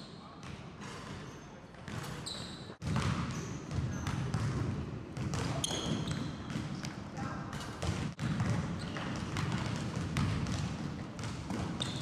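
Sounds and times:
sneakers squeaking: 0.0s - 12.0s
basketball bouncing on wooden floor: 2.8s - 4.6s, 5.2s - 5.6s, 7.8s - 12.0s.

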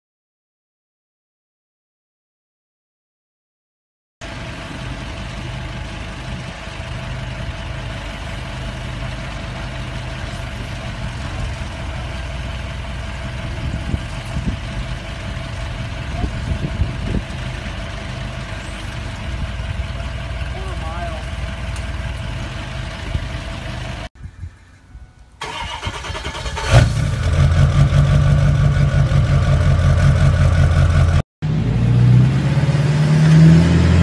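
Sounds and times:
engine idling: 4.2s - 24.1s, 25.4s - 31.2s.

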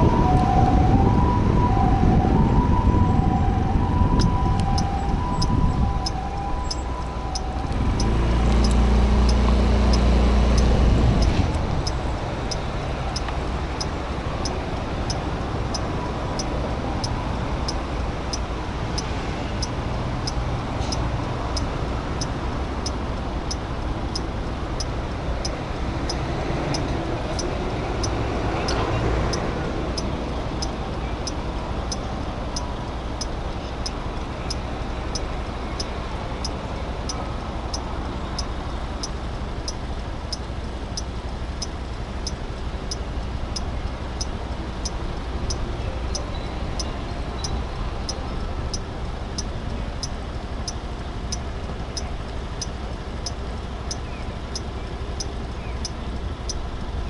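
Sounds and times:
vehicle passing: 0.0s - 39.7s
idling traffic rumble: 0.0s - 57.0s
turn signal ticking: 0.0s - 57.0s.

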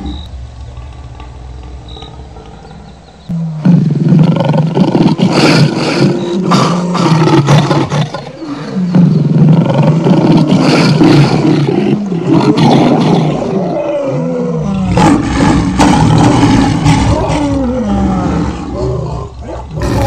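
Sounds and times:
lion roaring: 1.1s - 20.0s.

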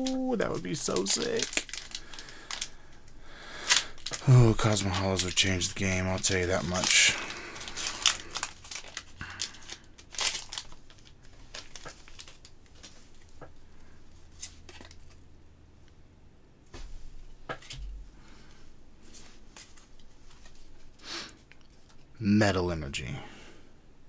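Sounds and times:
foil pack crinkling and tearing: 0.0s - 13.4s
cards shuffling clicks: 0.0s - 15.2s.

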